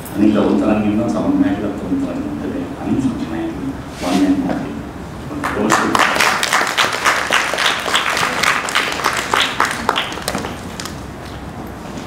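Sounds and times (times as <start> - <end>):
audience applauding: 5.4 - 11.0.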